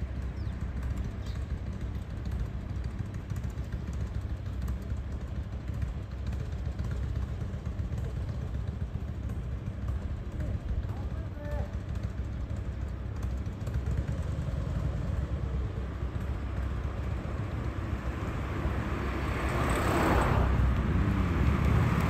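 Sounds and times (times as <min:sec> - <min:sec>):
motorcycles idling: 0:00.0 - 0:22.0.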